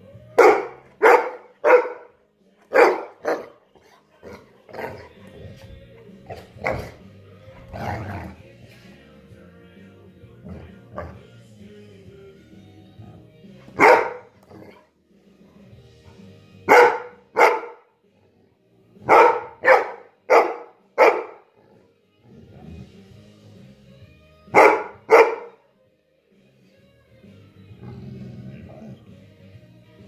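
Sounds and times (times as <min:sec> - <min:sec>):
dog barking: 0:00.4 - 0:02.1, 0:02.7 - 0:03.6, 0:13.8 - 0:14.8, 0:16.7 - 0:17.9, 0:19.0 - 0:21.5, 0:24.5 - 0:25.6.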